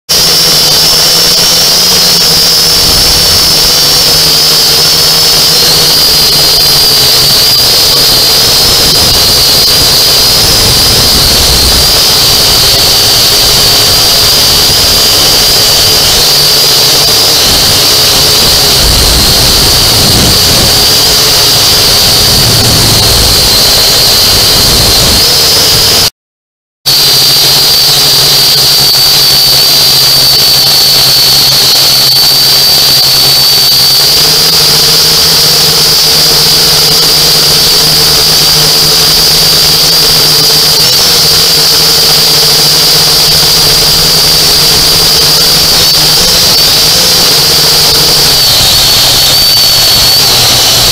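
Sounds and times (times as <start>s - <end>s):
drone motors whining: 0.1s - 26.1s, 26.9s - 50.9s.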